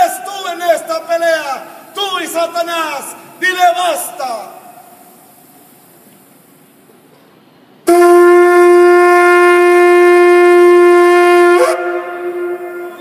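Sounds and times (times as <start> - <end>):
shofar horn blast: 7.9 - 13.0.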